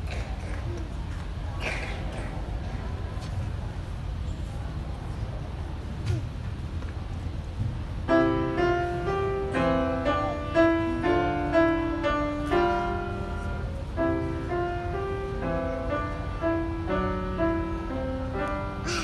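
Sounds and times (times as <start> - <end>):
solo grand piano piece: 8.0 - 19.0.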